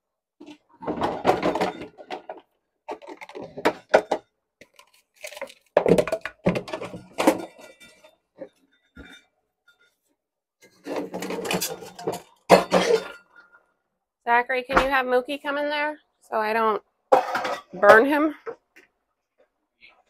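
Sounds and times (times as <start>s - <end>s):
pots and pans clattering: 0.4s - 4.3s, 5.8s - 10.0s, 10.7s - 13.6s, 17.1s - 18.1s.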